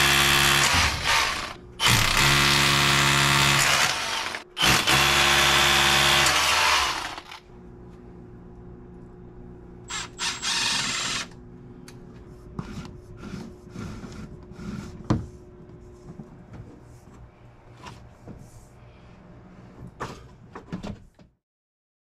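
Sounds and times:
power drill running: 0.0 - 7.4, 9.9 - 11.4
low steady hum: 6.9 - 20.0.

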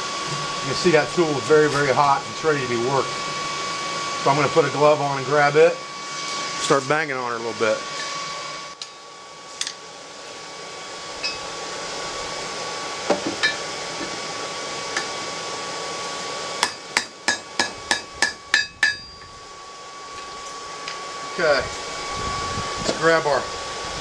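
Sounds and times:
steady whine: 0.0 - 24.0
hammer ringing on metal: 16.6 - 19.2.

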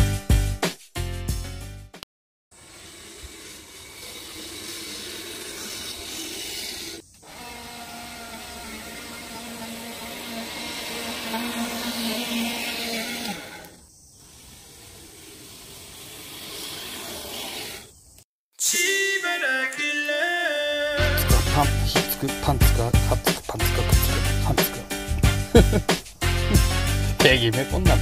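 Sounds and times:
lawn mower cutting grass: 2.5 - 17.9
reel mower whirring: 2.5 - 17.9.

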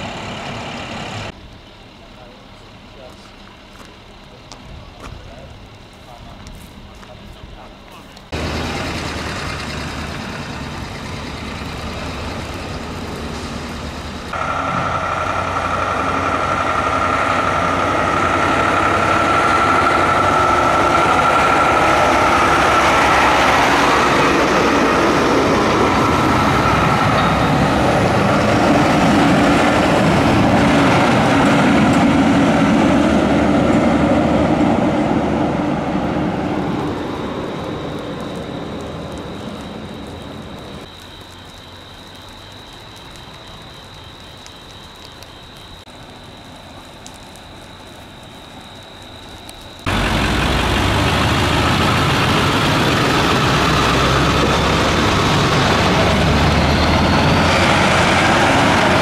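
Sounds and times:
heavy engine running: 0.0 - 1.4, 8.2 - 40.9, 49.8 - 59.0
steady whine: 0.0 - 41.0.

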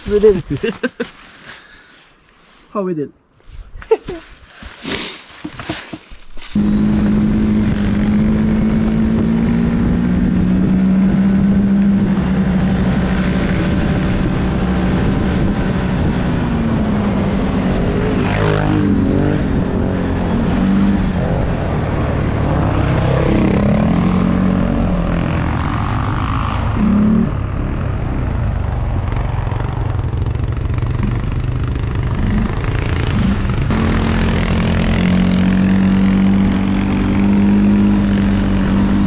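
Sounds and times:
atv engine running hard: 6.6 - 11.2, 22.1 - 39.0.

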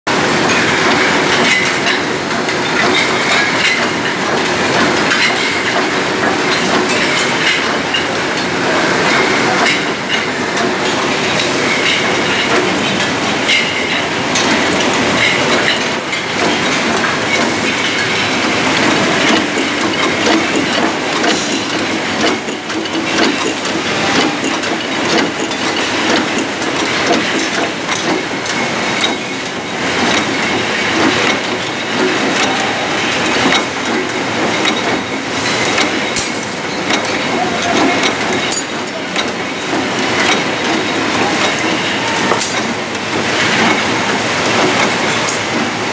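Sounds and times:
bottling machine clatter: 0.1 - 45.9
glass bottles clinking: 8.9 - 33.7, 34.5 - 45.4.

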